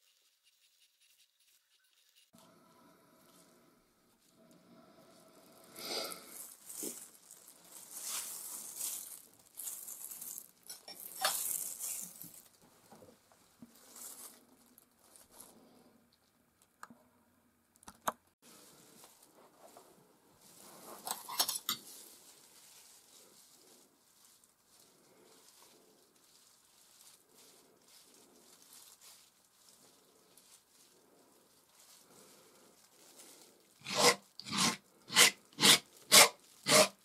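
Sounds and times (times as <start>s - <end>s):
palette knife scraping paint: 0.0s - 2.4s, 33.8s - 37.0s.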